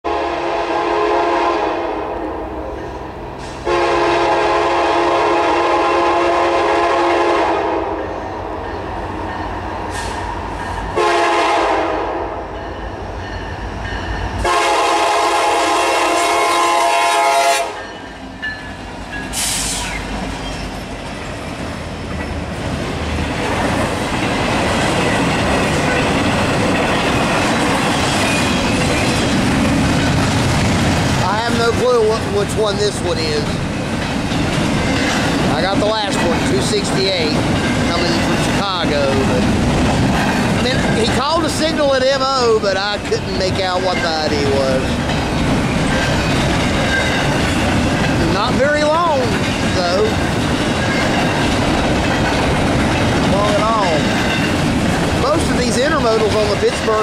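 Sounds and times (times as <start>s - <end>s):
train cars rumbling: 0.0s - 57.0s
locomotive horn blasts: 0.1s - 2.7s, 3.6s - 8.2s, 11.0s - 12.5s, 14.4s - 17.9s
train wheels clacking: 17.7s - 57.0s.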